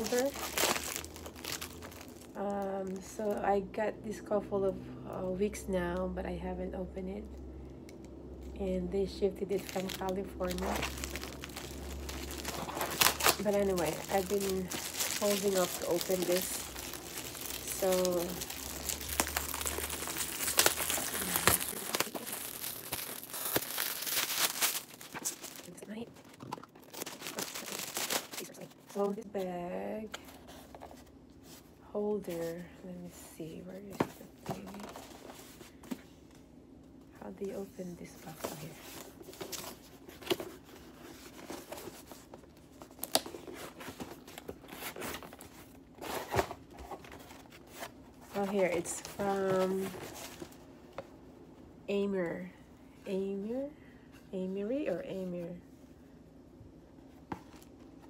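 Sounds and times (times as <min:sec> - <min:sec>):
plastic bag crinkling: 0:00.0 - 0:03.0, 0:09.5 - 0:29.2
cardboard and tape rustling: 0:00.0 - 0:03.1, 0:09.4 - 0:32.8, 0:33.4 - 0:36.1, 0:37.5 - 0:51.1
sharp crackles of plastic: 0:00.0 - 0:03.1, 0:09.4 - 0:29.2.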